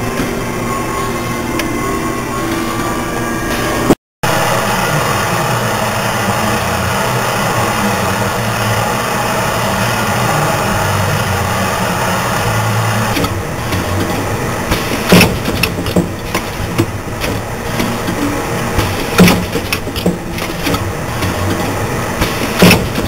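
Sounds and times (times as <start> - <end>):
machine running with low hum: 0.0 - 23.0
machine clacks: 13.1 - 23.0.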